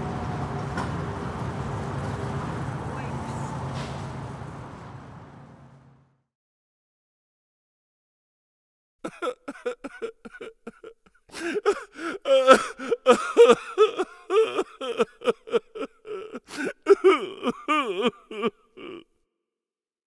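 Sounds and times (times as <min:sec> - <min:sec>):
comic person sobbing and wailing: 0:09.0 - 0:19.2.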